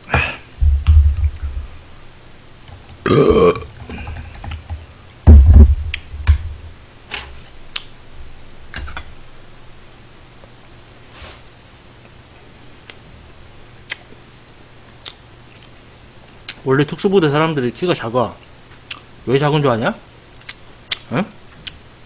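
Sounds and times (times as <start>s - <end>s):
heavy low thuds: 0.2s - 2.0s, 5.2s - 6.8s
man burping: 3.0s - 4.1s.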